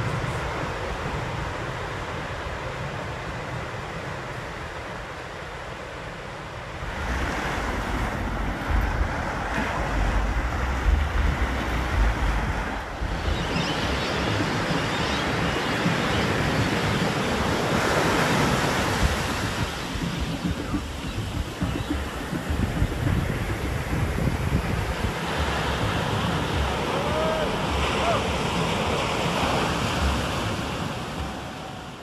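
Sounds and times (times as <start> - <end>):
ocean surf rushing: 0.0 - 32.0
wind buffeting microphone: 0.0 - 32.0.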